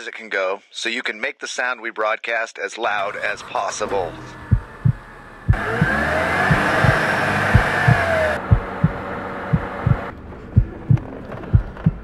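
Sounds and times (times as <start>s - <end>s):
wavering siren-like tones: 4.2s - 8.9s
heartbeat thuds: 4.5s - 12.0s.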